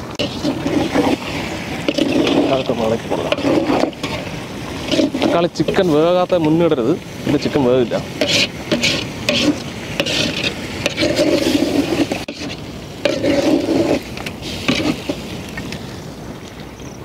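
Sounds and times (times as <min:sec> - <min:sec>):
metal spoon scraping a pot: 0:00.0 - 0:06.0, 0:08.2 - 0:15.2.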